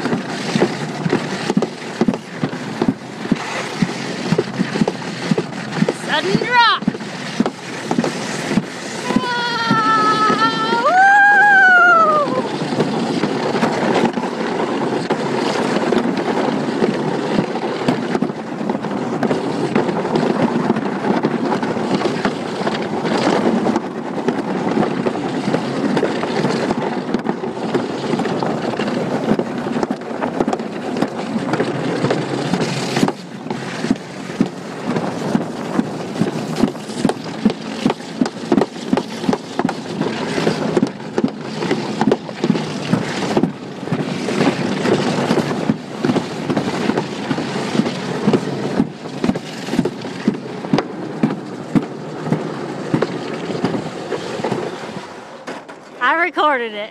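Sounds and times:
wind on microphone: 0.0 - 55.2
sled scraping down concrete track: 0.0 - 56.9.

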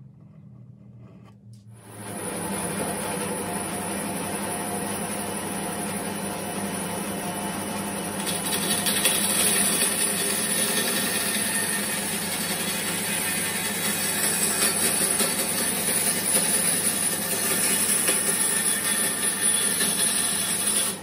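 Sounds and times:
bandsaw cutting wood: 8.2 - 21.0.

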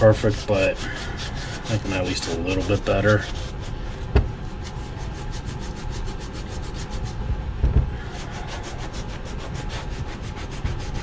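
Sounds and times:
sandpaper rasping on leather: 0.0 - 3.8, 4.5 - 7.2, 8.0 - 11.0
dull knock: 4.1 - 4.3.

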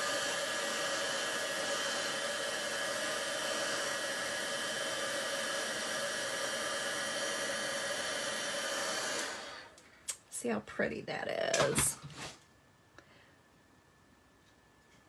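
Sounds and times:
heat tool blowing hiss: 0.0 - 9.8.

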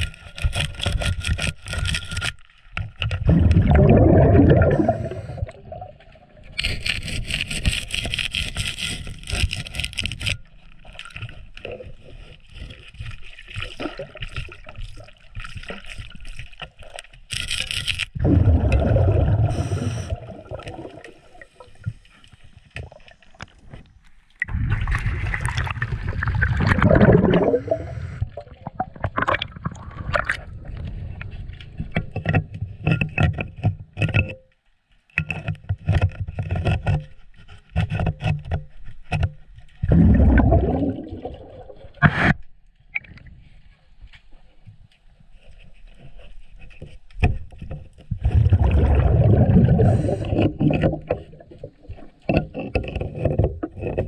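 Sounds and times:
underwater regulator bubbling: 3.1 - 9.8, 18.2 - 22.0, 24.4 - 32.8, 39.8 - 42.3, 48.2 - 54.0.

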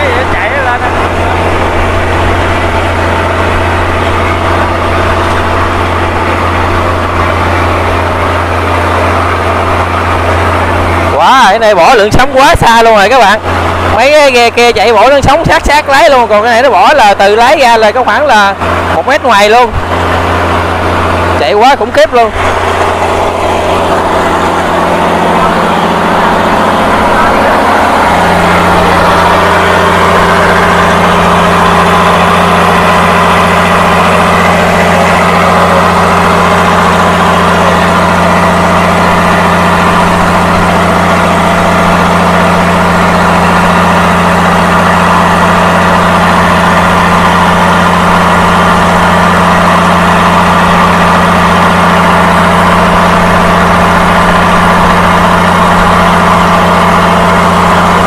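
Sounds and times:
diesel boat engine running: 0.0 - 58.0.

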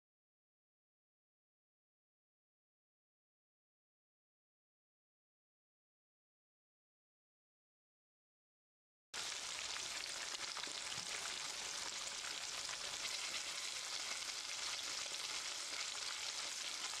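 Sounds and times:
fish deep-frying in oil: 9.2 - 17.0.

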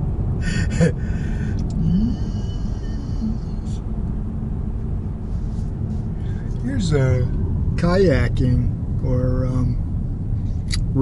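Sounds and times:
car engine rumble: 0.0 - 11.0.

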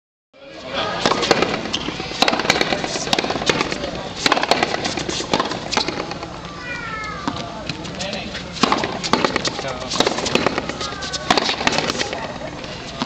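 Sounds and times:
ball struck with rackets: 1.0 - 6.3, 8.6 - 12.2.

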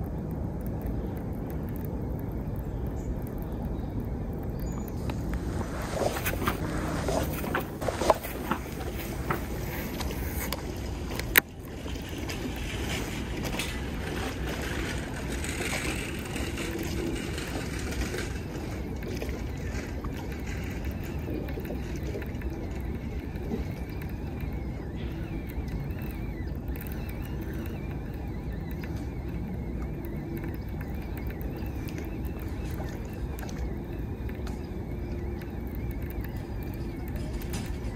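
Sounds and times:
low rumbling outdoor noise: 0.0 - 37.9.

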